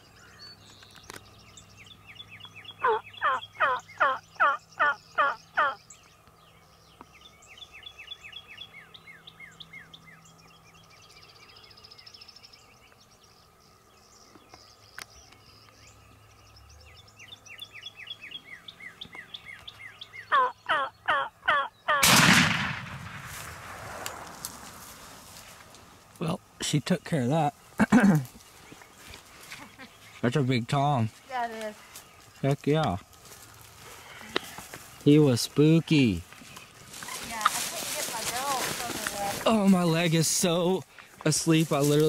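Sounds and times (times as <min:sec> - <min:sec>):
turkeys gobbling: 0:02.8 - 0:05.8, 0:20.3 - 0:22.1
shotgun shot: 0:22.0 - 0:24.2.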